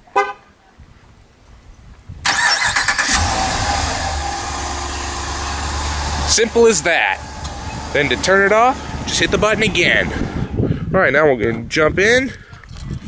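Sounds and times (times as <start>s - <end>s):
engine starting and idling: 2.2s - 10.4s.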